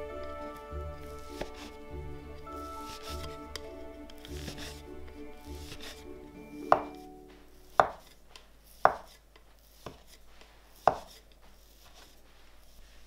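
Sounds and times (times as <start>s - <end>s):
scraper cutting dough: 1.0s - 1.7s, 2.5s - 3.4s, 4.2s - 4.8s, 5.4s - 6.1s, 7.7s - 13.0s.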